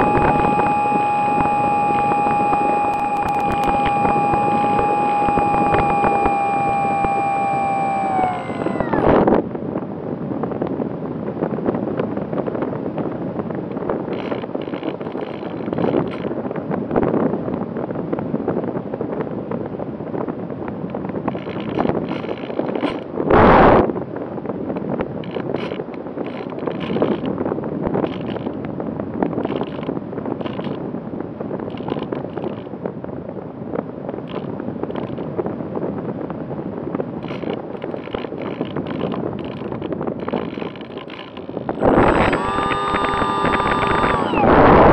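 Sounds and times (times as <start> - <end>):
electric motor hum: 0.0 - 9.5, 37.2 - 44.9
wind rushing over microphone: 0.0 - 44.9.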